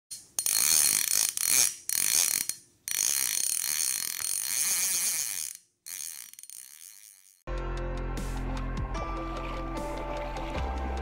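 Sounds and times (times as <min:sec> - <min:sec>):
mechanical ratcheting: 0:00.1 - 0:07.4.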